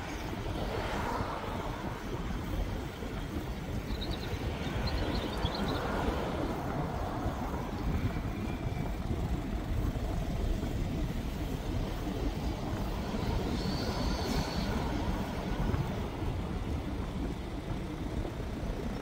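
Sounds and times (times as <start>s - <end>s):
road rumble: 0.0s - 19.0s
wind buffeting microphone: 0.0s - 19.0s.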